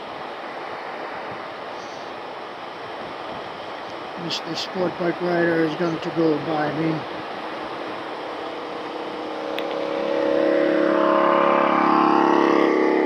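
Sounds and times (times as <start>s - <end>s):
wind and road noise: 0.0s - 13.0s
passing motorcycle engine: 7.7s - 13.0s.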